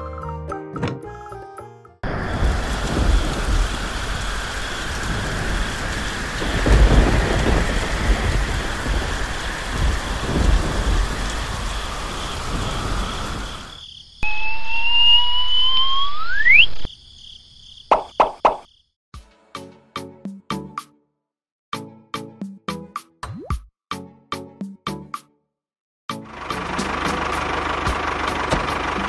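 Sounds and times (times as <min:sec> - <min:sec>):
heavy rain: 0:02.0 - 0:13.8, 0:26.4 - 0:29.0
thunder rumbling: 0:02.0 - 0:15.0
rising whistle-like tone: 0:14.2 - 0:16.9.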